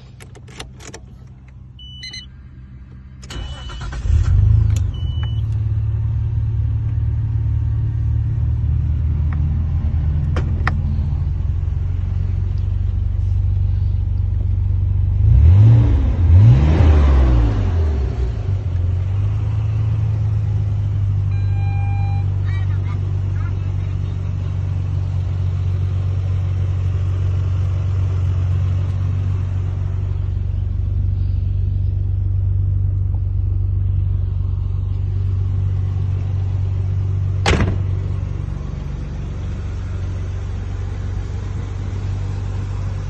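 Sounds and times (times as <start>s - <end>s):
car engine cranking and idling: 0.0s - 43.0s
short beeps: 1.8s - 2.3s, 4.9s - 5.6s, 21.3s - 22.3s
engine revving: 3.2s - 5.1s, 15.0s - 22.2s.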